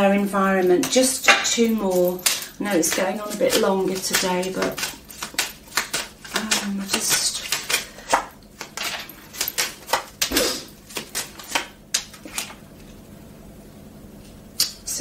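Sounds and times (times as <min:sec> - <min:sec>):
cards being shuffled: 0:02.0 - 0:13.0.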